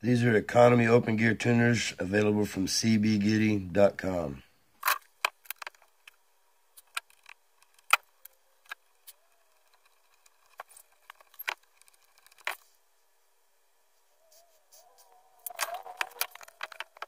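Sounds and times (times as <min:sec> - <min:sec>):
small metal parts clicking: 0:04.8 - 0:06.2, 0:06.8 - 0:12.7, 0:15.4 - 0:17.0.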